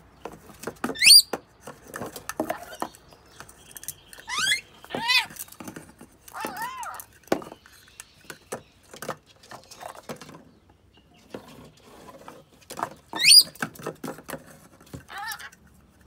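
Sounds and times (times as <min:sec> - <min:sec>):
bird squeal: 0:00.9 - 0:01.3, 0:04.1 - 0:05.4, 0:13.1 - 0:13.6.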